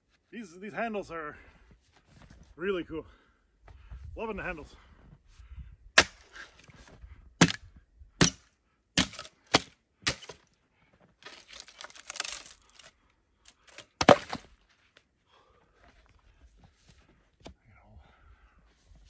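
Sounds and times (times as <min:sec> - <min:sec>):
axe striking wood: 0:06.0 - 0:06.5, 0:07.4 - 0:07.6, 0:08.2 - 0:10.4, 0:13.7 - 0:14.5
wood cracking: 0:09.0 - 0:10.5, 0:11.2 - 0:14.6.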